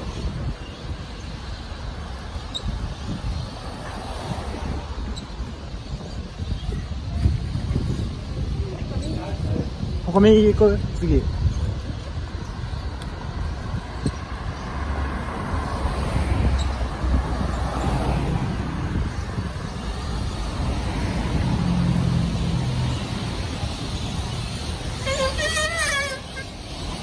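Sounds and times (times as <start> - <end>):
cars driving past: 3.1 - 5.6, 13.8 - 27.0.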